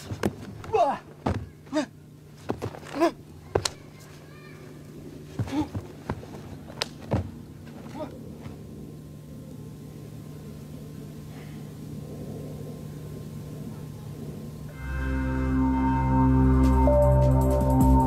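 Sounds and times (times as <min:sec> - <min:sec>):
steady low hum: 0:00.0 - 0:18.0
person shouting: 0:00.7 - 0:02.0.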